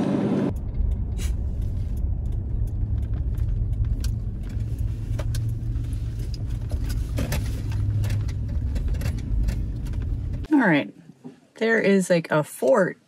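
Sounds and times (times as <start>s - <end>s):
car engine and road rumble: 0.0s - 10.6s
light clicks and rattles: 0.5s - 10.5s.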